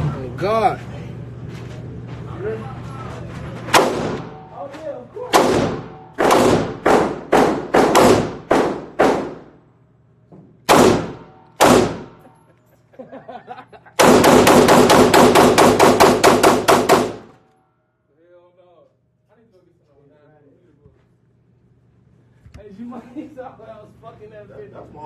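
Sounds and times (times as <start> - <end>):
pistol shots: 3.7 - 4.5, 5.3 - 9.6, 10.7 - 12.2, 14.0 - 17.4.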